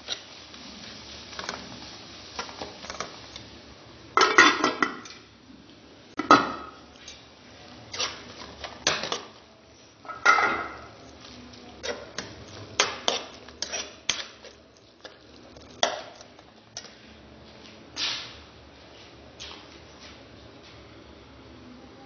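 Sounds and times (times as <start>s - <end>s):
metal spoon scraping a pot: 7.9s - 9.3s, 11.8s - 16.9s.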